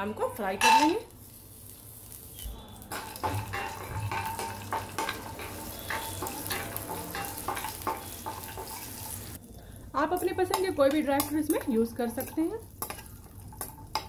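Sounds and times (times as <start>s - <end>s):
nuts sizzling in fat: 0.0s - 14.0s
spoon scraping pan: 2.3s - 9.4s.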